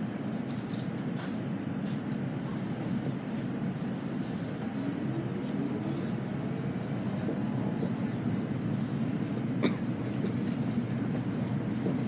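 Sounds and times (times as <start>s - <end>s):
train rumble inside passenger car: 0.0s - 12.0s.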